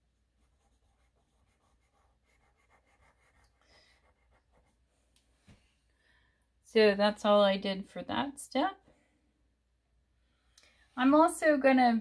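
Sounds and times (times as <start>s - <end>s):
pencil scratching on paper: 0.4s - 4.9s.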